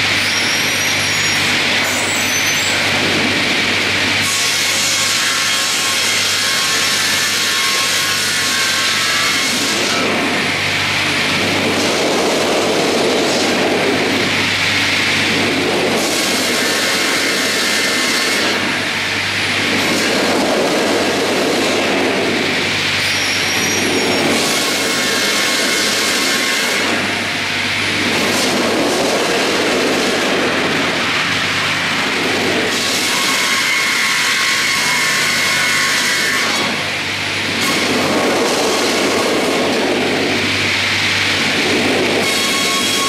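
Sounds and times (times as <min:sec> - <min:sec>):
saw blades cutting log: 0:04.2 - 0:10.2, 0:16.0 - 0:18.8, 0:23.0 - 0:27.2, 0:32.6 - 0:36.9, 0:42.2 - 0:43.0.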